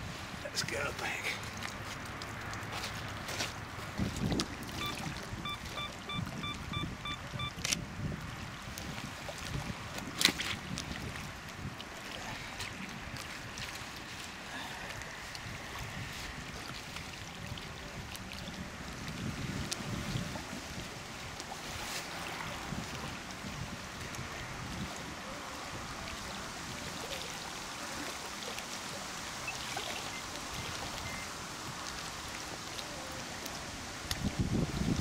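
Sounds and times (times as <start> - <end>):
small waves lapping on gravel: 0.0 - 6.0, 8.0 - 35.0.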